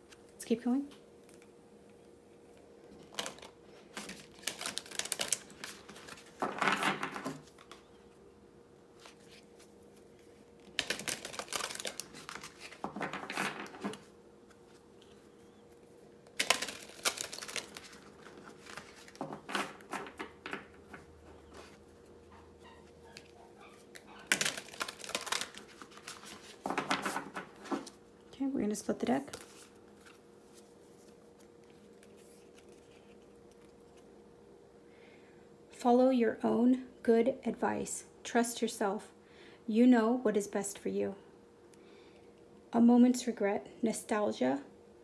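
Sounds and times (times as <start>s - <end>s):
cards being shuffled: 2.5s - 8.0s, 9.0s - 22.0s, 23.1s - 28.0s, 29.2s - 34.1s.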